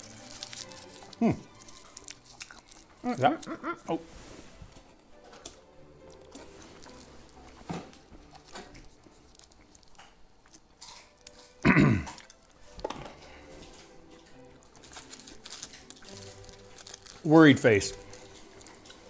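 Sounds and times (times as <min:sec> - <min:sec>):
faint chewing: 0:00.0 - 0:04.0, 0:04.7 - 0:19.0
throat-clearing cough: 0:11.6 - 0:12.2.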